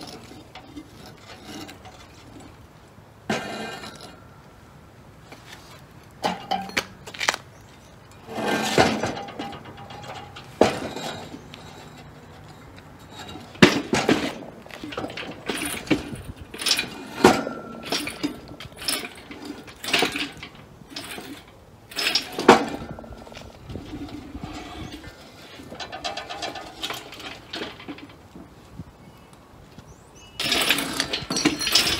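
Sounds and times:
metal clanks and knocks: 0:03.2 - 0:04.5, 0:06.2 - 0:07.4, 0:08.1 - 0:28.5, 0:30.4 - 0:31.9
chain rattling: 0:14.8 - 0:28.2, 0:30.4 - 0:31.9.

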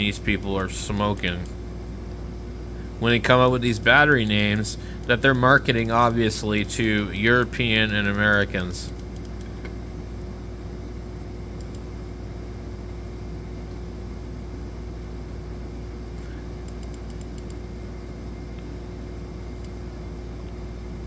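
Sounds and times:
fan-like room hum and hiss: 0:00.0 - 0:21.0.

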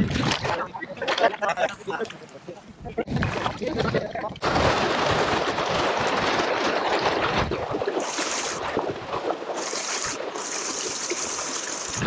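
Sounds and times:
wind buffeting microphone: 0:02.7 - 0:09.4
water rushing along kayak hull: 0:03.1 - 0:12.0
hiss of spray: 0:08.0 - 0:08.6, 0:09.6 - 0:12.0.

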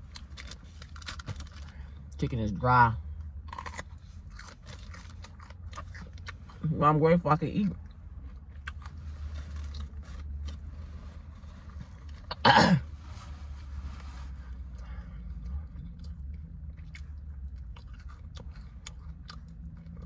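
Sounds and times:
person chewing: 0:03.3 - 0:06.6, 0:07.8 - 0:10.6, 0:14.7 - 0:20.0
person coughing: 0:12.3 - 0:12.9.

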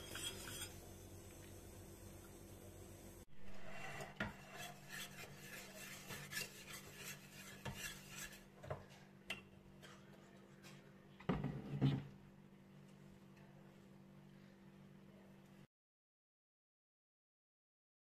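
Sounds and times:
metal utensils clinking on pot: 0:00.0 - 0:00.8
metal spoon scraping pot: 0:00.0 - 0:00.9, 0:03.4 - 0:08.5.

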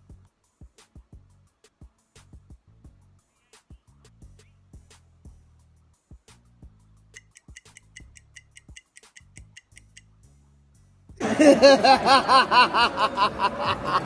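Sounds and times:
faint music with ticking beat: 0:00.0 - 0:11.2
man laughing loudly: 0:11.2 - 0:14.0.

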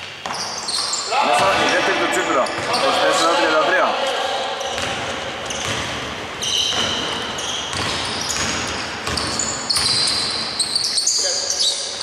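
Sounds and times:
sneakers squeaking on floor: 0:00.0 - 0:03.6, 0:04.2 - 0:12.0
basketball bouncing: 0:02.4 - 0:02.8, 0:04.7 - 0:10.6.

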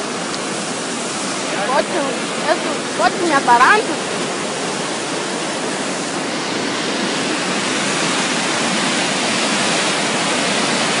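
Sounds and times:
flooded river rushing: 0:00.0 - 0:11.0.

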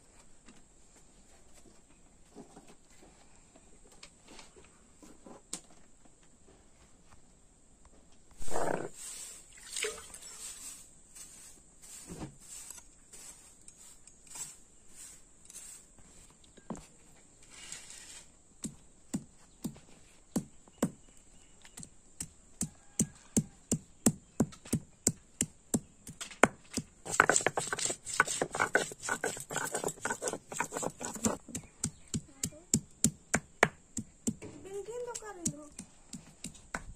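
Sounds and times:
stone knocking on stone slab: 0:26.4 - 0:34.4.

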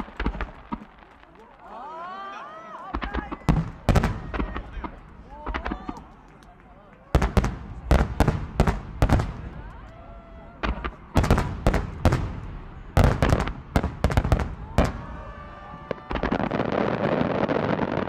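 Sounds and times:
firework shells bursting: 0:00.0 - 0:01.6.

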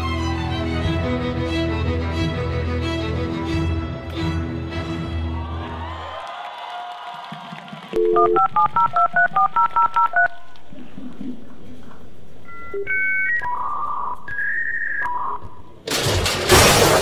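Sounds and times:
two-note dial tone: 0:08.0 - 0:10.3
electronic phone tones: 0:08.0 - 0:10.4, 0:12.5 - 0:15.0
touch-tone beeps: 0:08.0 - 0:10.4, 0:12.5 - 0:15.1.

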